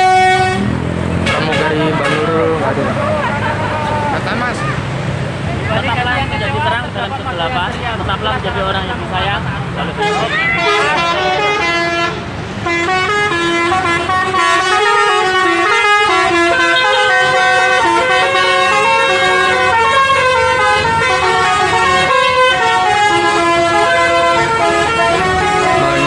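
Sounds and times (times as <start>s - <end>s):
musical air horn melody: 0.0s - 2.6s, 10.0s - 26.0s.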